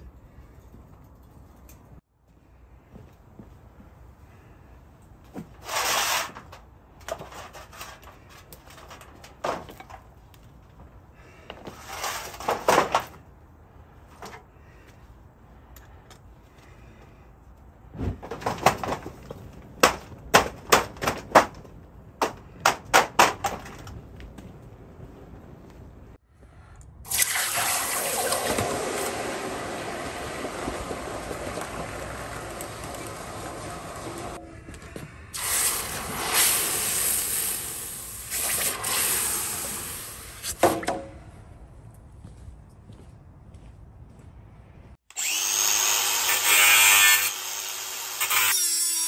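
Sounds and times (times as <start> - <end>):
water hissing and sizzling: 35.4 - 40.6.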